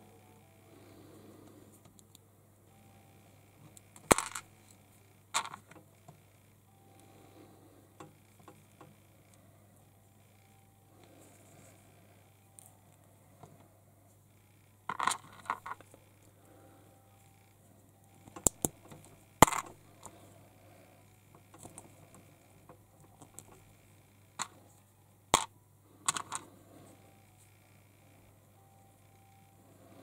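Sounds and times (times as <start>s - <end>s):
plastic toy parts clicking: 18.2s - 20.1s, 25.3s - 26.5s.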